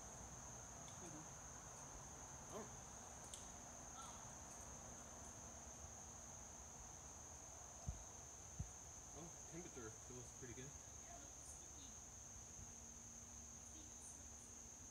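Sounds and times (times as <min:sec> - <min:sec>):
insects droning: 0:00.0 - 0:14.9.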